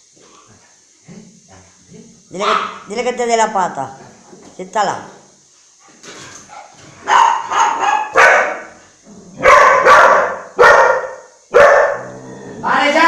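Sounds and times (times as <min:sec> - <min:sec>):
dog barking: 0:02.4 - 0:02.8, 0:06.5 - 0:08.8, 0:09.4 - 0:12.1.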